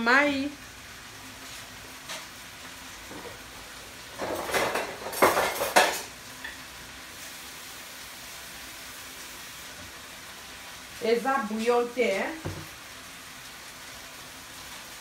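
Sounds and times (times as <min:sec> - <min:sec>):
vegetables sizzling in a frying pan: 0:00.0 - 0:15.0
pots and utensils clattering: 0:03.1 - 0:03.5, 0:04.1 - 0:06.6.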